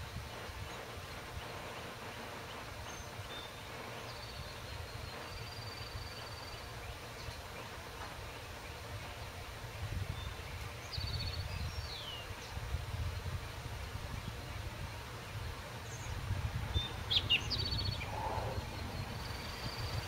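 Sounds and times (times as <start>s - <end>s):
small birds chirping: 0.0s - 20.0s
steady low rumble: 12.7s - 20.0s.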